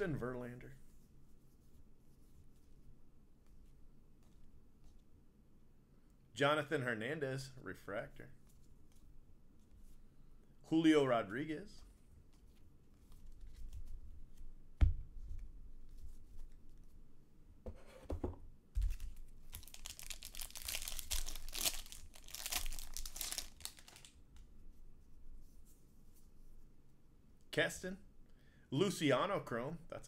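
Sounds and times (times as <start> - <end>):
wrapper tearing and crinkling: 18.9 - 24.2.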